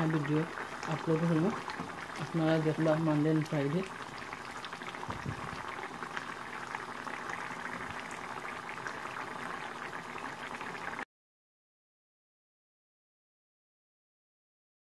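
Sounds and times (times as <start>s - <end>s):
curry simmering in a pan: 0.0s - 11.0s
bubbles popping: 0.1s - 10.8s.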